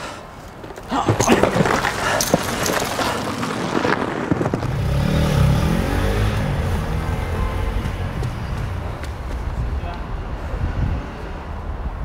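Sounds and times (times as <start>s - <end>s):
passing vehicle engine: 4.6s - 12.0s.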